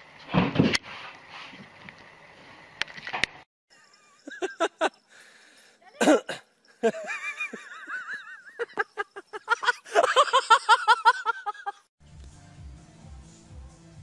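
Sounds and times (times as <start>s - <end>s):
person laughing: 3.9s - 5.0s, 6.8s - 11.9s.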